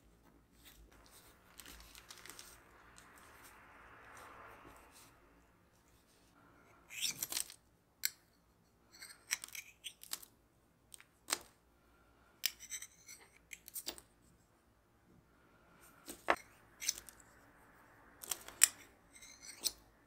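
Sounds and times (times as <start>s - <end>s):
metal knife scraping metal ring: 12.4s - 13.4s, 18.6s - 19.8s.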